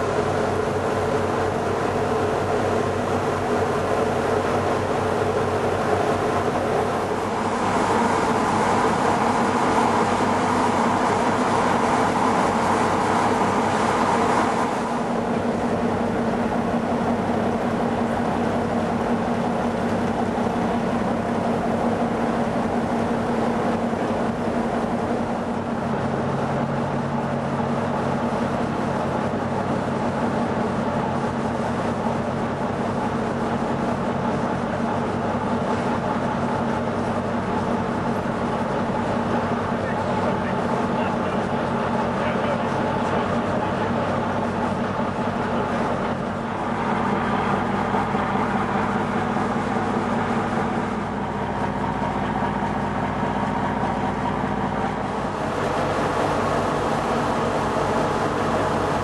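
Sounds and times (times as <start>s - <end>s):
ship engines humming: 0.0s - 59.0s
rushing noise: 45.9s - 59.0s.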